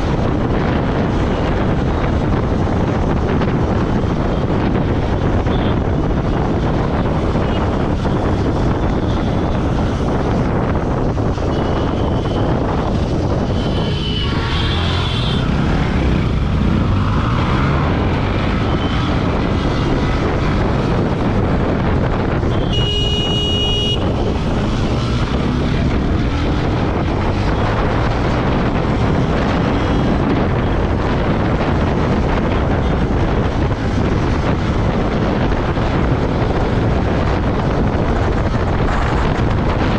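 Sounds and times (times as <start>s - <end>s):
wind buffeting microphone: 0.0s - 39.9s
motorcycle engine: 11.9s - 30.0s
vehicle horn: 13.5s - 15.5s, 22.5s - 24.1s.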